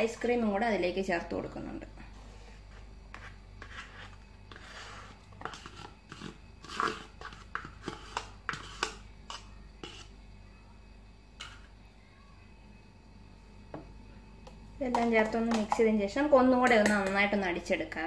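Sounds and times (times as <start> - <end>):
spoon scraping ice cream tub: 2.2 - 10.2, 11.4 - 11.7.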